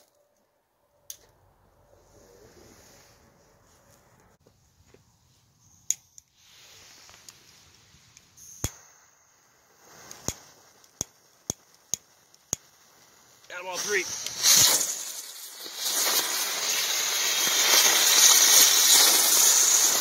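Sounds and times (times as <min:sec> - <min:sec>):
firework fuse hissing: 0:05.0 - 0:20.0
lighter clicking: 0:08.1 - 0:08.9, 0:10.0 - 0:12.7.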